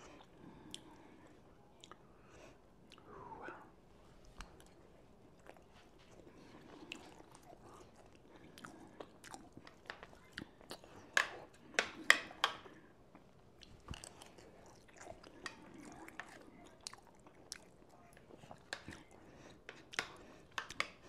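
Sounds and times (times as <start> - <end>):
chewing and biting food: 4.3 - 21.0.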